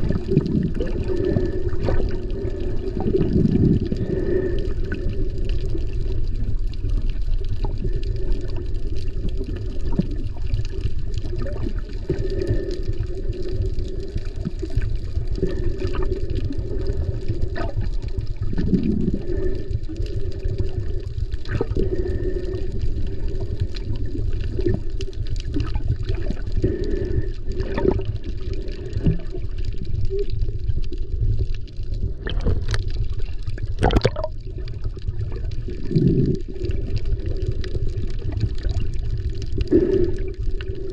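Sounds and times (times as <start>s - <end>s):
bubbles splashing: 0.0s - 40.9s
underwater water rumble: 0.0s - 40.9s
small clicks and pops: 27.6s - 40.8s.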